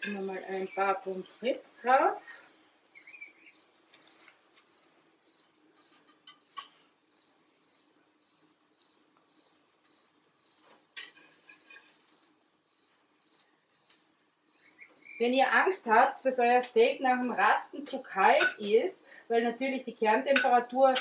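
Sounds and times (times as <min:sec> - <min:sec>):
cricket chirping: 0:00.0 - 0:19.6
spatula clinking on plates: 0:16.6 - 0:18.7, 0:20.3 - 0:21.0.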